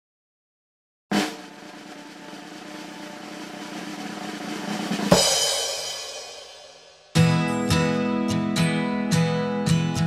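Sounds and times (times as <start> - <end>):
drum roll over held chord: 1.1 - 8.1
cymbal crash: 1.2 - 7.2.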